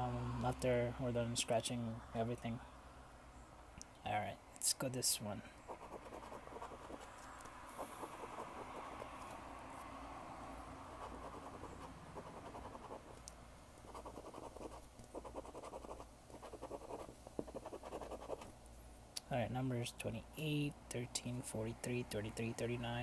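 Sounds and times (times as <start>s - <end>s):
coin scratching lottery ticket: 5.7s - 7.0s, 11.0s - 13.1s, 13.9s - 18.5s.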